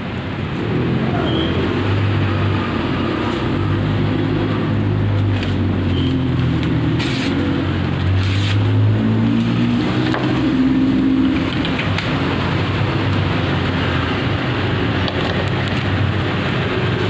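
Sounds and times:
machete slicing paper: 8.2 - 8.7.

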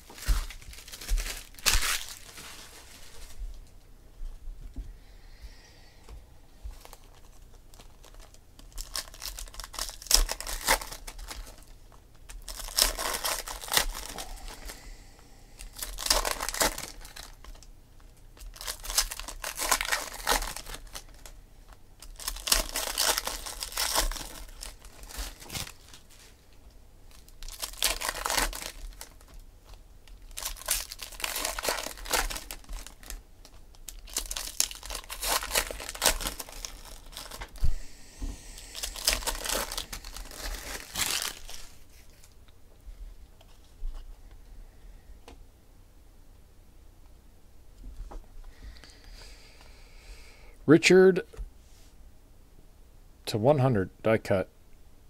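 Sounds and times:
foil packs tearing and crinkling: 0.0 - 3.4, 6.8 - 14.9, 15.6 - 17.7, 18.4 - 21.3, 22.0 - 26.4, 27.1 - 37.7, 38.5 - 42.3.

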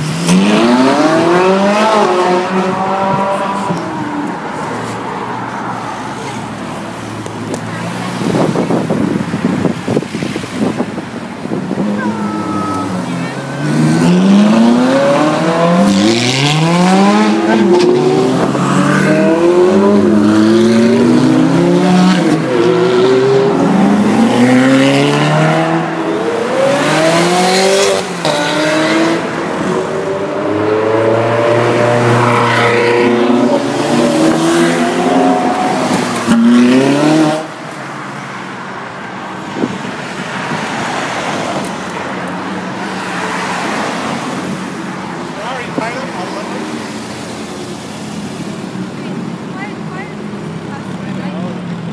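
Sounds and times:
sports cars accelerating past: 12.8 - 37.7.

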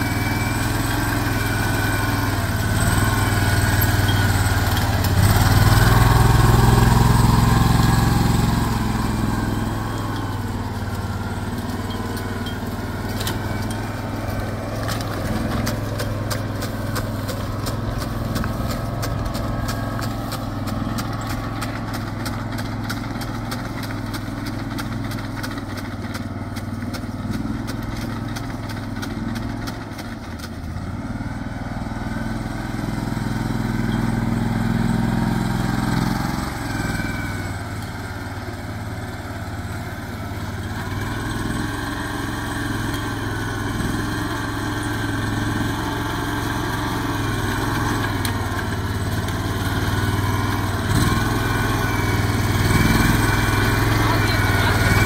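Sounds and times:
farm machine engine running: 0.0 - 55.0.

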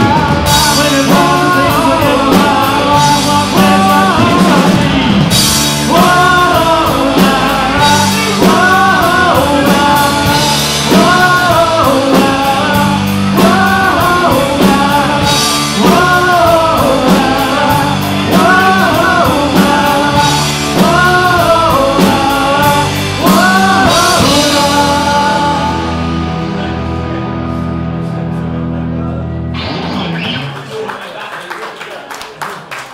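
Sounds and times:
woman singing: 0.0 - 5.1, 5.8 - 26.0
live rock band playing: 0.0 - 31.0.

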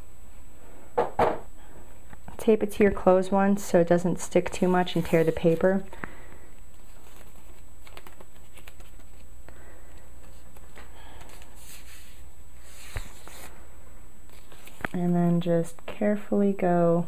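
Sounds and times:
hands rustling and tapping: 6.7 - 9.6.

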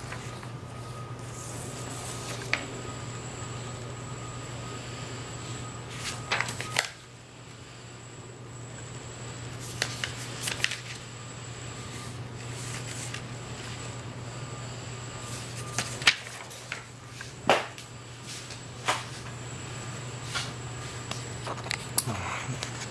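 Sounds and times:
steady low hum: 0.0 - 22.9
paper rustling and tapping: 6.0 - 7.0, 9.6 - 11.0, 15.6 - 17.8
paper snaps: 9.7 - 11.0.

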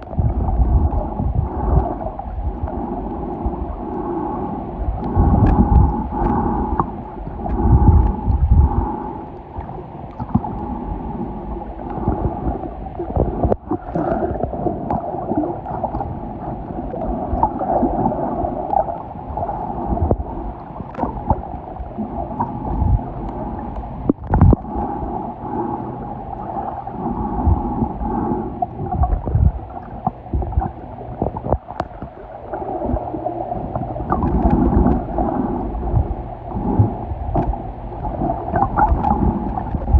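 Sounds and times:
water sloshing and gurgling underwater: 0.0 - 39.9
low underwater thumps: 24.1 - 24.7.

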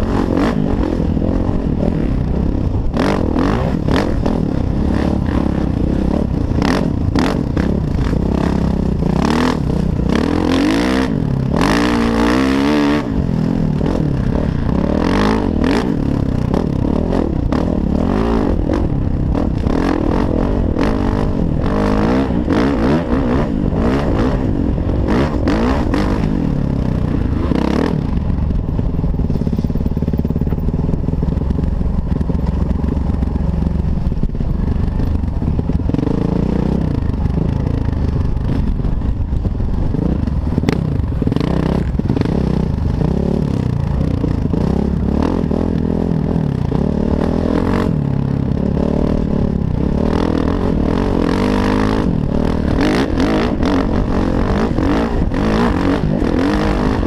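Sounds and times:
dirt bike engine revving: 0.0 - 28.6, 34.0 - 57.0
wind noise on microphone: 0.0 - 57.0
bike rattling over rough trail: 24.4 - 57.0.

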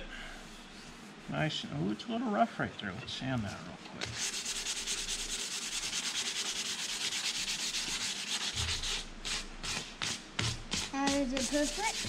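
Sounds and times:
sandpaper rubbing wood: 4.0 - 12.0.

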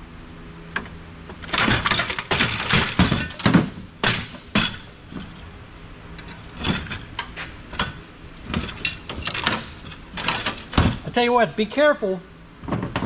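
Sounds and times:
metal and plastic parts rattling: 1.3 - 5.4, 6.2 - 11.2.

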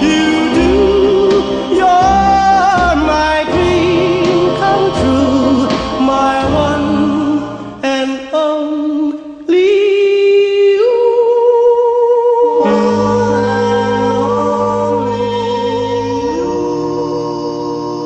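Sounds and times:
sustained musical accompaniment: 0.0 - 8.5, 12.6 - 18.0
person singing long wavering notes: 12.6 - 18.0.

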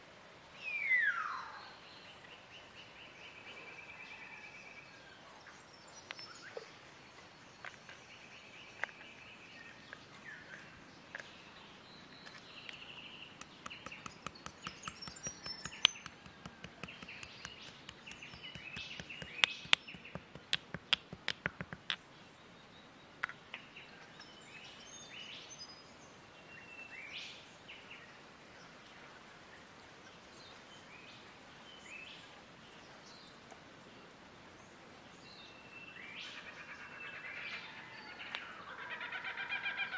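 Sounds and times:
birds chirping: 7.5 - 22.1
pestle pounding in a mortar: 13.4 - 22.0.

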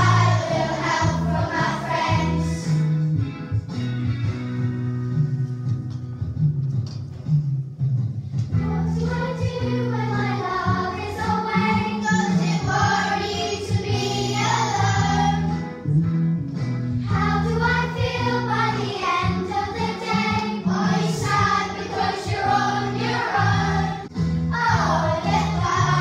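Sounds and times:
children's choir singing: 0.0 - 2.6, 8.6 - 15.5, 17.1 - 26.0.

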